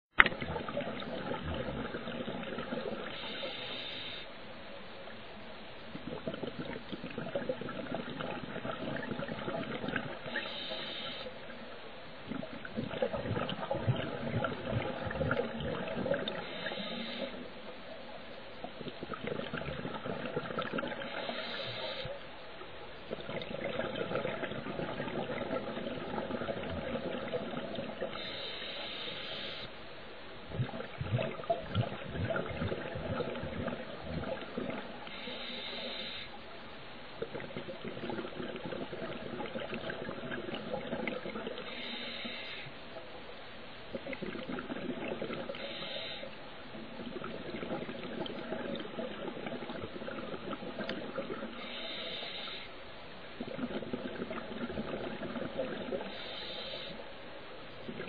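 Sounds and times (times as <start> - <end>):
regulator inhalation hiss: 3.1 - 4.4, 10.3 - 11.4, 16.4 - 17.6, 21.0 - 22.2, 28.0 - 29.7, 35.0 - 36.4, 41.6 - 42.8, 45.5 - 46.5, 51.6 - 52.8, 56.0 - 57.1
bubbling exhalation: 18.8 - 21.5, 23.1 - 28.2, 30.5 - 35.0, 37.2 - 41.7, 43.9 - 45.6, 46.8 - 51.6, 53.4 - 56.1.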